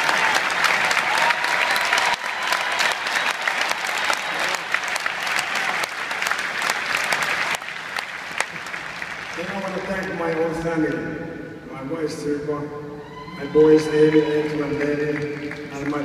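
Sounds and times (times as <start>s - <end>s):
large crowd applauding: 0.0s - 10.6s, 13.8s - 16.0s.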